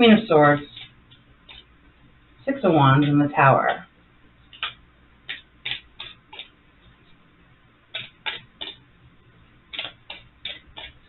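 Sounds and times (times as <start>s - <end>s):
cards being shuffled: 4.6s - 6.5s.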